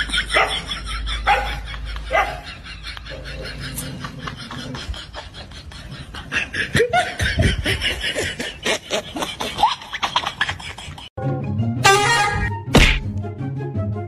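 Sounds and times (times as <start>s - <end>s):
laughter in rapid bursts: 0.0s - 11.2s.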